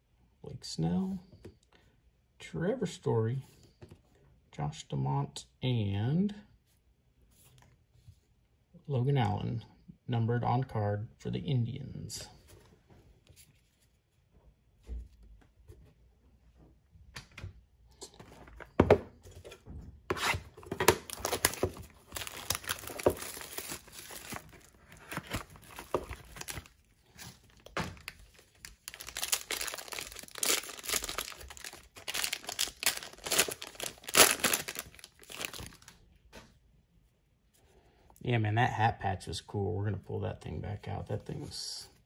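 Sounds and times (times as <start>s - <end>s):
foil wrapper crinkling and tearing: 21.0s - 26.8s, 27.4s - 36.0s.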